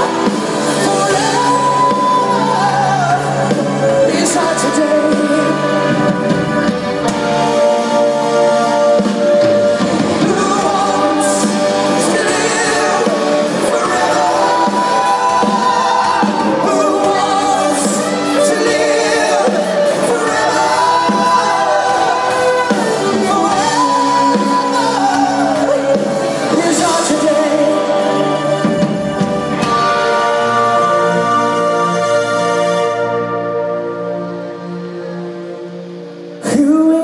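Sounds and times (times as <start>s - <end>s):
male vocal holding long notes: 0.0s - 6.3s, 7.9s - 29.2s
live rock ballad: 0.0s - 37.0s.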